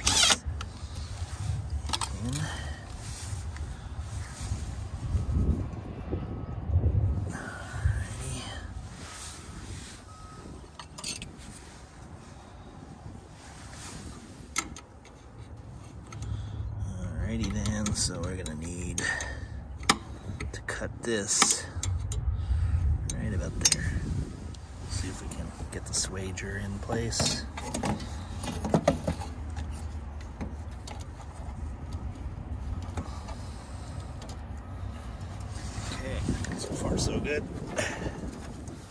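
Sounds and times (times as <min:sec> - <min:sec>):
metallic clicks and scrapes: 0:00.0 - 0:03.7, 0:10.7 - 0:12.1, 0:17.1 - 0:37.1
steady low rumble: 0:00.0 - 0:28.5, 0:29.2 - 0:38.9.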